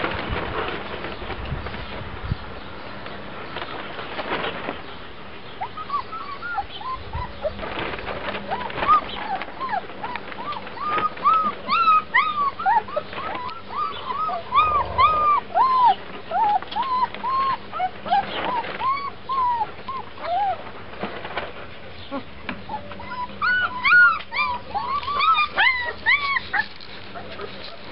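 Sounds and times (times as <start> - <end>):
puppies whining: 5.6 - 20.8, 22.0 - 27.9.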